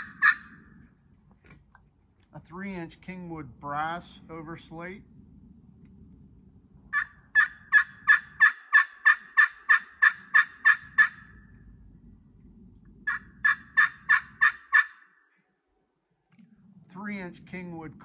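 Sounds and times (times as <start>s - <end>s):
turkey call yelps: 0.0s - 0.7s, 6.9s - 11.4s, 13.0s - 15.2s.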